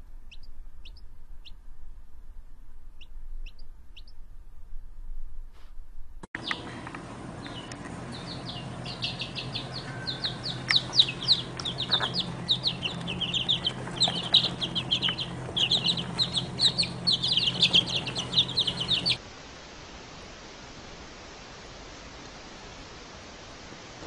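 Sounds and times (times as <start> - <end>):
chicks peeping: 0.3 - 1.6, 3.0 - 4.2, 6.4 - 19.2.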